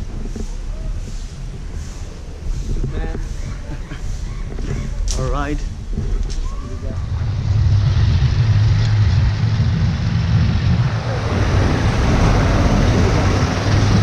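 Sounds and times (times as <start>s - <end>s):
wind and road noise: 0.0s - 14.0s
motorcycle engine running: 7.0s - 14.0s.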